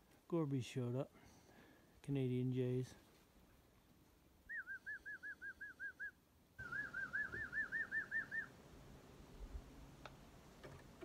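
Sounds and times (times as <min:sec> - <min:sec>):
repeated whistled notes: 0:04.5 - 0:08.5.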